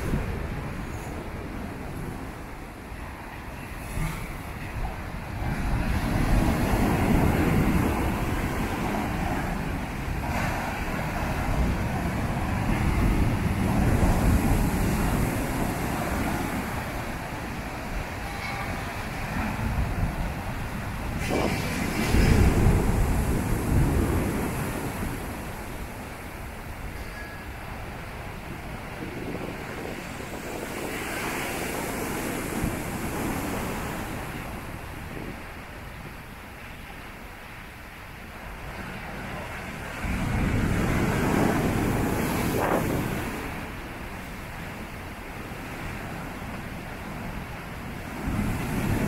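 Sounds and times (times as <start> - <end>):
wind buffeting microphone: 0.0 - 37.0, 38.2 - 49.0
waves crashing on beach: 0.0 - 49.0
surf breaking over rocks: 19.2 - 26.0, 39.3 - 44.4.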